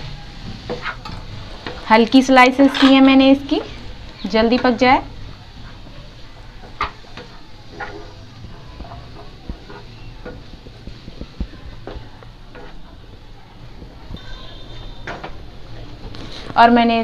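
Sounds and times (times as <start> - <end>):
spatula scraping frying pan: 0.0 - 13.1.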